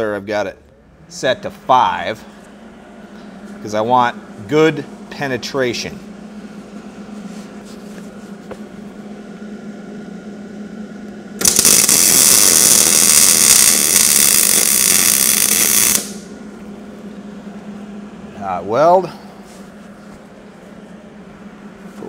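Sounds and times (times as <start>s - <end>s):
low steady hum: 0.0s - 22.0s
welding arc crackling: 11.4s - 16.3s.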